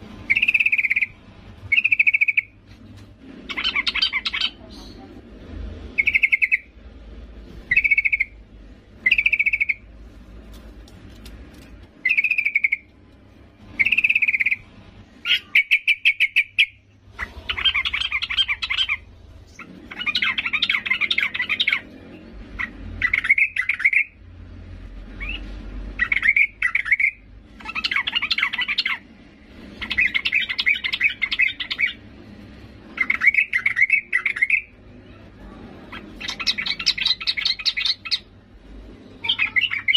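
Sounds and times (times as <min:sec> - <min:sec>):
bird chattering: 0:00.3 - 0:02.6, 0:03.5 - 0:05.2, 0:06.0 - 0:06.7, 0:07.7 - 0:08.4, 0:09.0 - 0:09.9, 0:12.0 - 0:12.9, 0:13.8 - 0:14.6, 0:15.2 - 0:22.0, 0:22.6 - 0:24.2, 0:26.0 - 0:29.0, 0:29.8 - 0:32.0, 0:32.9 - 0:34.8, 0:35.8 - 0:38.3, 0:39.2 - 0:39.9
bird calling bubbly phrases: 0:39.2 - 0:39.9.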